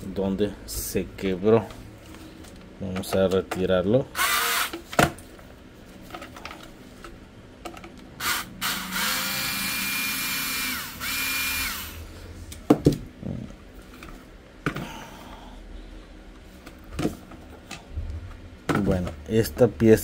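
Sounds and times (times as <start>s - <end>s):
electric screwdriver motor whining: 4.2s - 4.8s, 8.2s - 12.0s.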